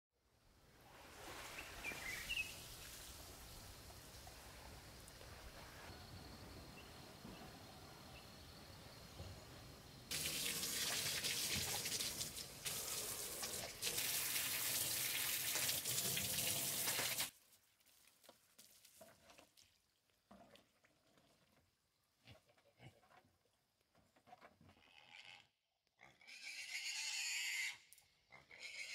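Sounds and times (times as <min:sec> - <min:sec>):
water jetting from garden hose: 0:10.1 - 0:19.6.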